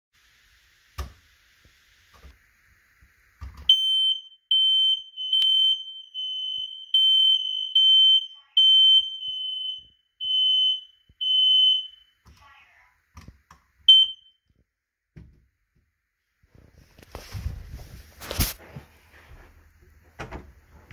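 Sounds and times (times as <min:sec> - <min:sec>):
smoke alarm beeping: 0:03.7 - 0:12.2, 0:13.8 - 0:14.5.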